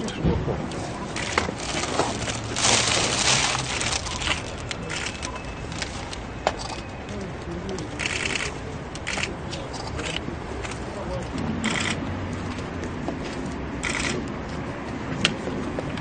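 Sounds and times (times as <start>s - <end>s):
plastic bag rustling: 1.2s - 6.2s.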